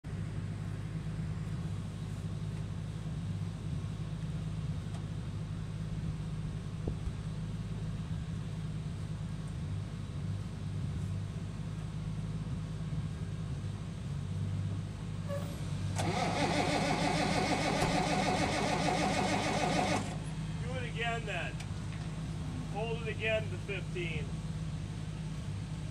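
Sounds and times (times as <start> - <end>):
tractor engine running: 0.0 - 25.9
diesel tractor engine cranking: 15.3 - 24.2.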